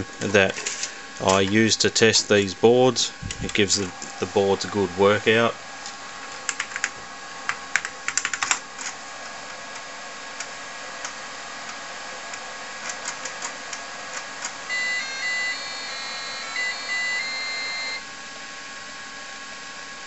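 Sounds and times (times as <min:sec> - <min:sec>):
floppy drive ticking and clicking: 0:00.0 - 0:05.4, 0:06.4 - 0:09.0, 0:09.7 - 0:18.0
computer keystrokes: 0:07.7 - 0:08.6
electronic beeping tune: 0:14.7 - 0:18.0.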